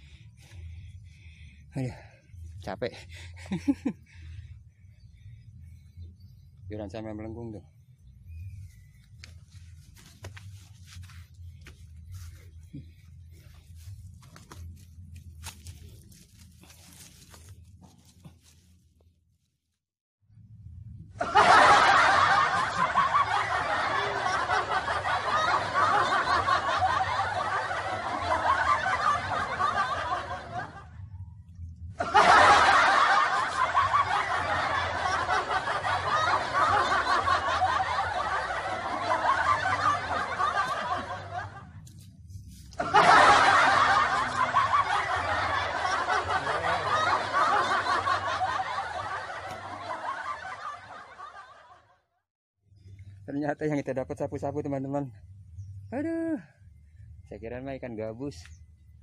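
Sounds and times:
loud laughing: 21.2 - 30.8, 32.0 - 41.6, 42.8 - 51.7.

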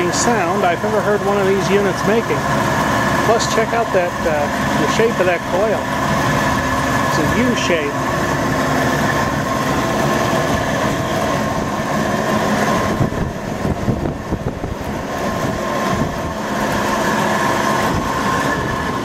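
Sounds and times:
air conditioner hum: 0.0 - 19.0
whining tones: 0.0 - 19.0.

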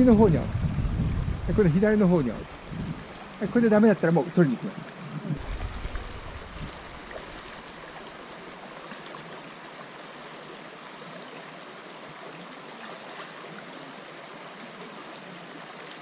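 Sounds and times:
river flowing over stones: 0.0 - 16.0.

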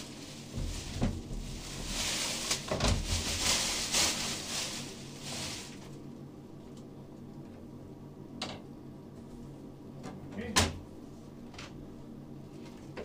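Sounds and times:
plastic film crinkling: 0.0 - 6.0.

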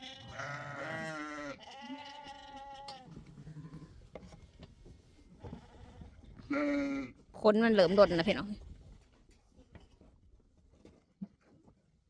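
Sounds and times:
sheep bleating: 0.0 - 3.8, 5.5 - 7.2.

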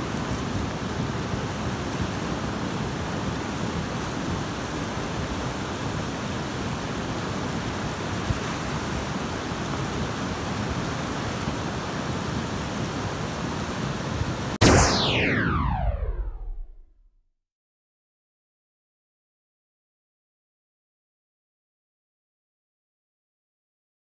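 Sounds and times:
river rushing: 0.0 - 14.4.

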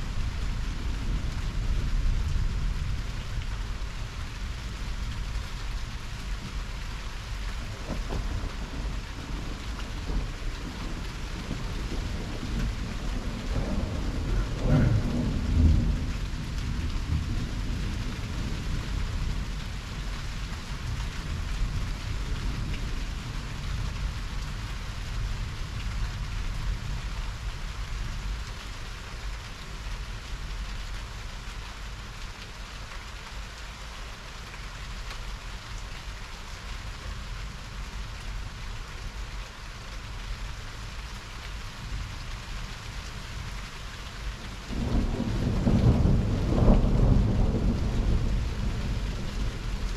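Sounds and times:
heavy rain: 0.0 - 49.9
thunder rumble: 7.6 - 20.1, 44.6 - 49.9.

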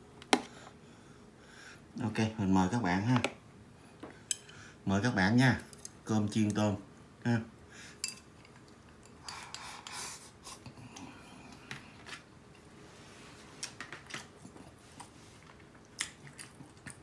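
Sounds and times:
person chewing food: 13.6 - 17.0.

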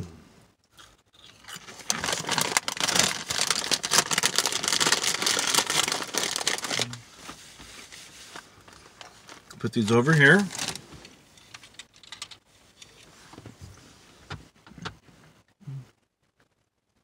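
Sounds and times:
chip bag crinkling: 1.2 - 7.0, 9.0 - 10.8.

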